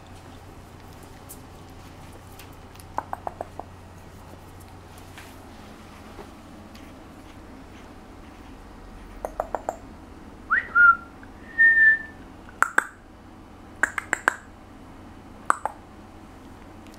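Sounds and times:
person whistling: 10.5 - 12.2
sharp clicks: 12.5 - 13.0, 13.8 - 14.5.

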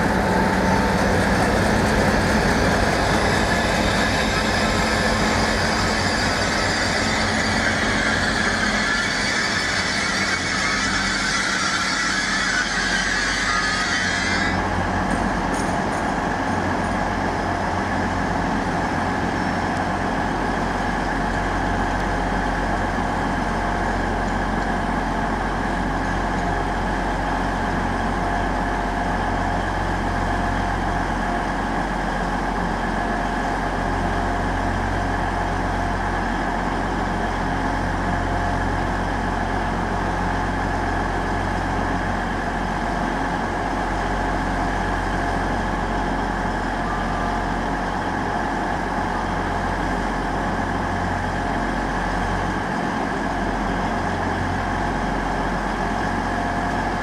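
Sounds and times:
whining tones: 0.0 - 14.8
train engine humming: 0.0 - 57.0.

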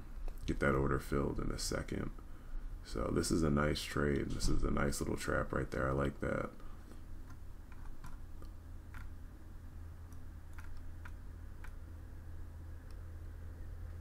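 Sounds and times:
low hum: 0.0 - 14.0
computer mouse clicking: 7.2 - 9.2, 10.0 - 11.8.

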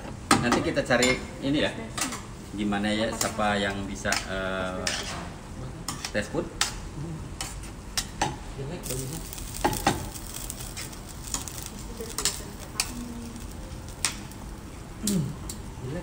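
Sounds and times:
tongs clicking against pan: 5.9 - 6.8, 8.8 - 15.7
food sizzling in a skillet: 7.4 - 16.0.

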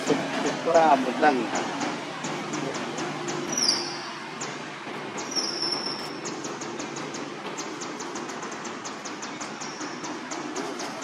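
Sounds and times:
outdoor background noise: 0.0 - 11.0
high-pitched whistling calls: 3.5 - 4.1, 5.2 - 6.3.

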